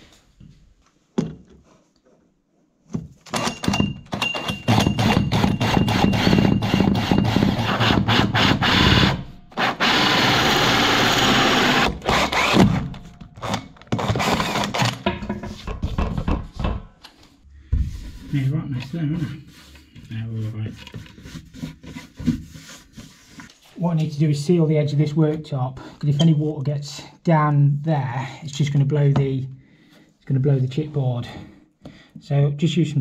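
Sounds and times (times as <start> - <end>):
drill with holesaw cutting chipboard: 4.4 - 14.9.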